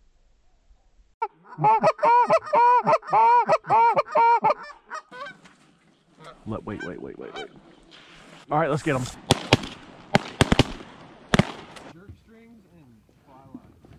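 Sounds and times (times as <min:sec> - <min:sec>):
goose honking: 0:01.2 - 0:05.6, 0:06.2 - 0:07.6.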